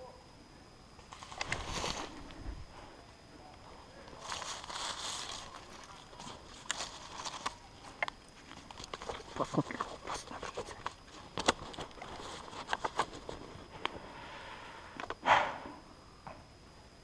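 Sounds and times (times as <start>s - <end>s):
footsteps crunching through dry leaves: 1.1s - 2.7s, 4.1s - 10.0s
sticks cracking underfoot: 4.1s - 13.4s.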